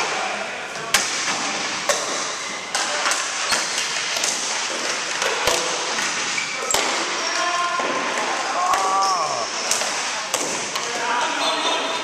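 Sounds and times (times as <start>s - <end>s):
hockey sticks and ball clacking: 0.0s - 12.0s.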